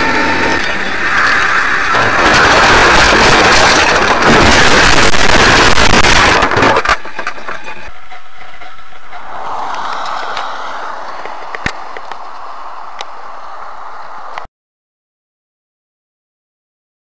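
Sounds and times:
vehicle crashing through brush: 0.0s - 7.9s.

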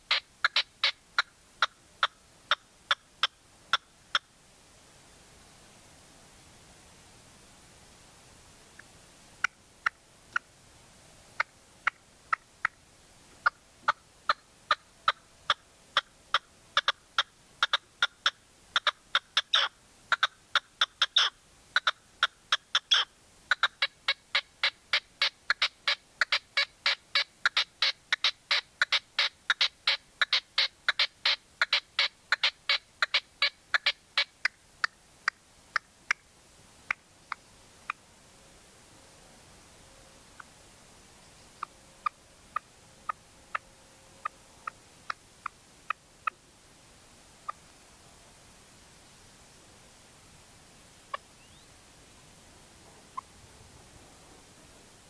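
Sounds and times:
partridge calling: 0.0s - 4.3s, 13.4s - 36.2s, 41.5s - 43.6s, 51.1s - 51.7s.

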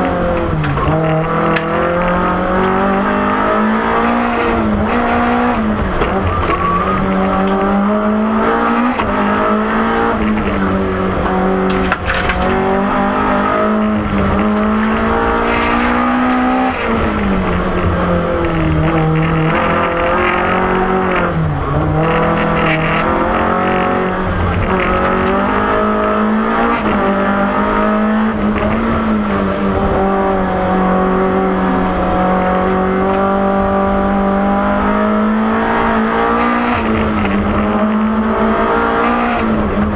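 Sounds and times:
rally car engine revving: 0.0s - 39.9s.

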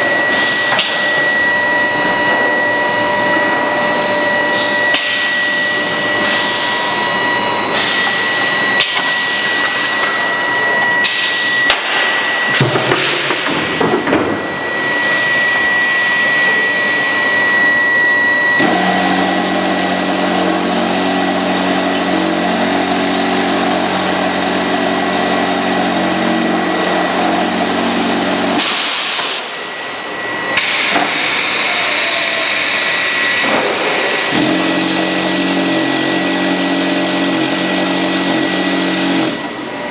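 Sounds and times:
low machine hum: 0.0s - 39.9s
industrial machinery hiss: 4.6s - 7.1s, 7.7s - 10.3s, 18.6s - 39.4s.

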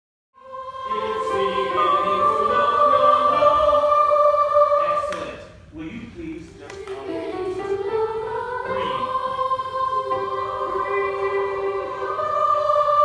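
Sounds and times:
children's choir singing: 0.4s - 5.6s, 6.5s - 13.0s.

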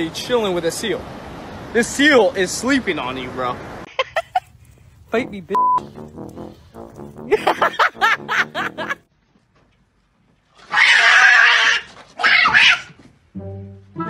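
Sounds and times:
cat screeching: 10.6s - 13.0s.

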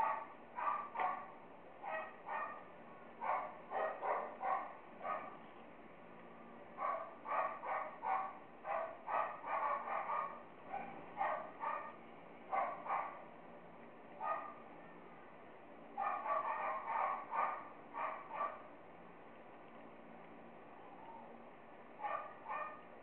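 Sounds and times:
dog barking: 0.0s - 5.4s, 6.8s - 13.3s, 14.2s - 14.6s, 16.0s - 18.7s, 22.0s - 22.9s.

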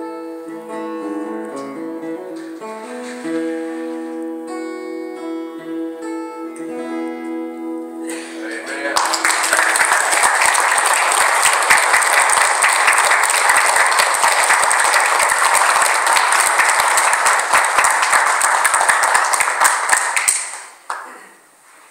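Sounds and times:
congregation clapping: 8.1s - 21.3s.

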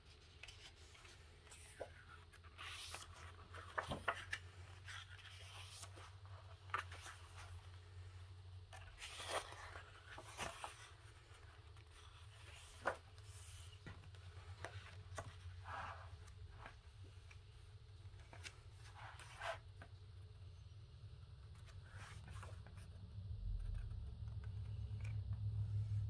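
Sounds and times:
paper pages rustling: 0.0s - 19.8s
steady low hum: 0.1s - 26.0s.

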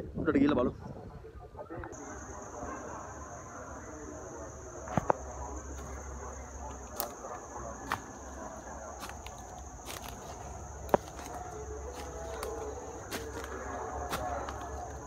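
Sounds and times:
footsteps on dry leaves: 4.9s - 15.0s.

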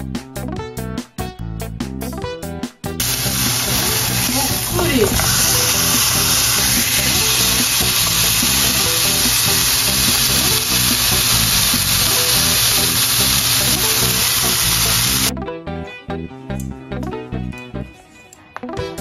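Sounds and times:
background music: 0.0s - 19.0s
steak sizzling in a frying pan: 3.0s - 15.3s.

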